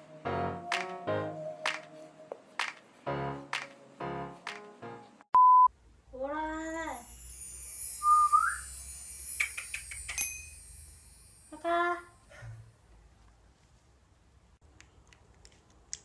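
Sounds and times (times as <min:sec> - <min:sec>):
short electronic beep: 0:05.4 - 0:05.7
whistle-like squeak: 0:07.7 - 0:09.9.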